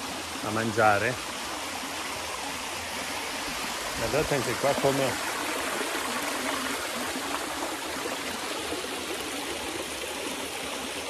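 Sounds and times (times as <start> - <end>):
stream running over rock: 0.0 - 11.0.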